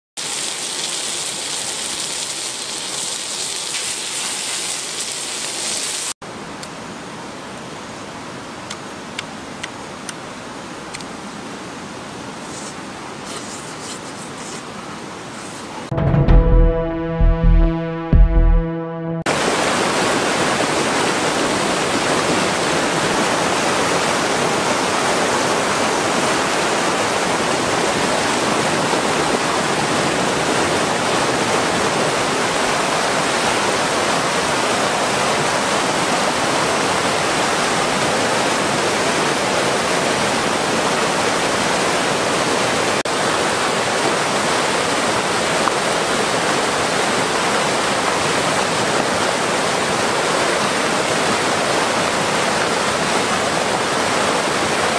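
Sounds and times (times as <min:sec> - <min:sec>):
whitewater rushing over rocks: 0:19.3 - 0:54.9.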